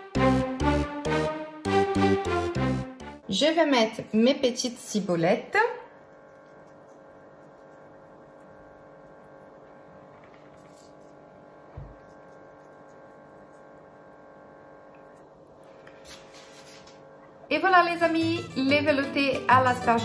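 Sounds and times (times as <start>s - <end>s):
faint electrical hum: 3.2s - 18.3s.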